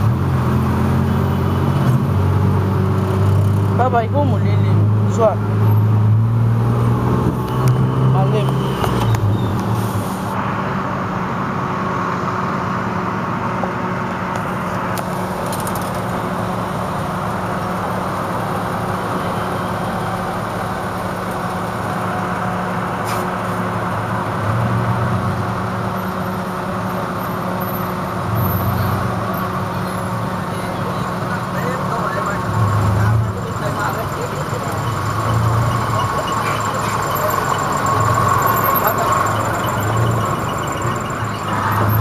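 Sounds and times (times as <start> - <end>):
engine low hum: 0.0 - 42.0
road noise: 0.0 - 42.0.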